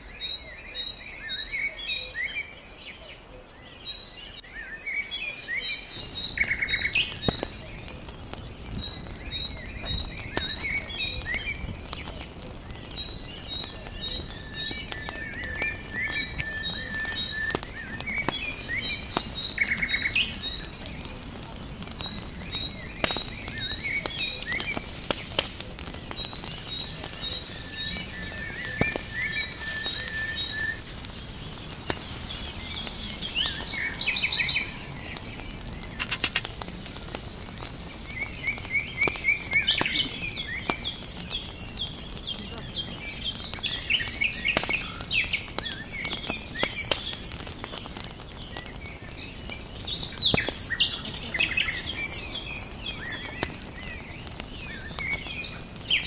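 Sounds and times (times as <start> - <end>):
small birds chirping and trilling: 0.0 - 56.0
steady hiss: 15.6 - 41.4
scattered clicks: 35.9 - 38.2.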